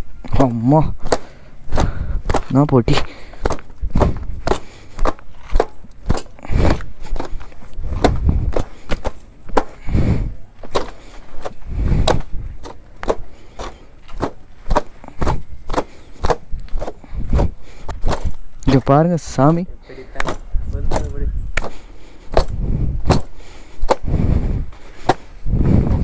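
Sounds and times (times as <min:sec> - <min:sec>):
dull thuds: 0:00.8 - 0:18.4, 0:20.2 - 0:26.0
cloth thwacking a motorcycle: 0:03.4 - 0:09.8.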